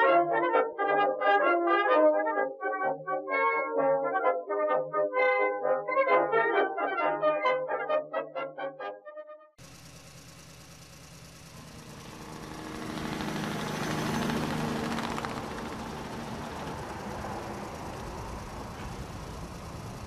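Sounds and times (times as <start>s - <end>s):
motor humming: 9.6s - 20.0s.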